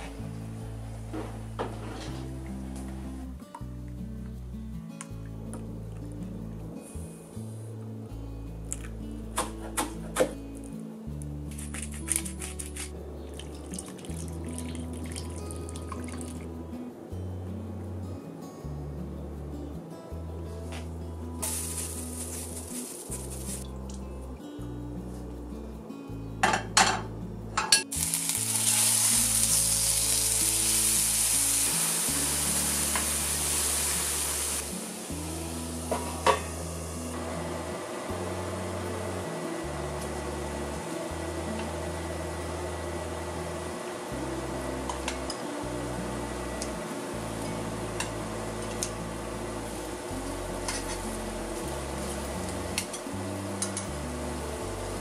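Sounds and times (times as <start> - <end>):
soft acoustic music: 0.0 - 55.0
meat sizzling in pan: 21.4 - 23.6, 27.9 - 36.3
meat crackling in oil: 27.9 - 34.7.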